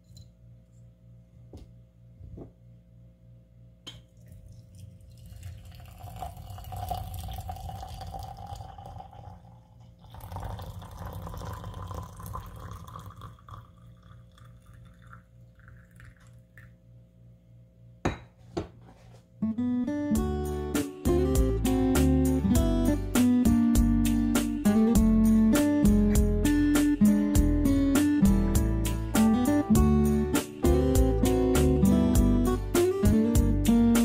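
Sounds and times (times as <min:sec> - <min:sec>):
water pouring into glass pitcher: 0:04.1 - 0:16.8.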